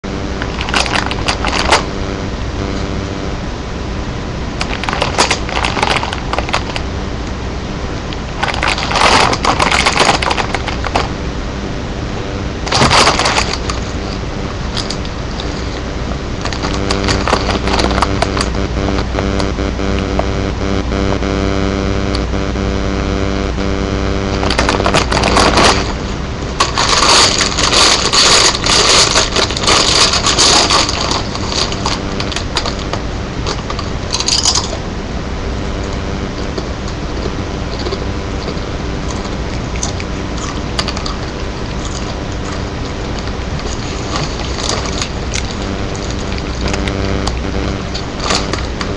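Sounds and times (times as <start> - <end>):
steady hum: 0.0 - 48.9
chip bag crackling and crunching: 0.5 - 1.8, 4.6 - 6.8, 8.4 - 11.1, 12.7 - 14.0, 26.6 - 34.7.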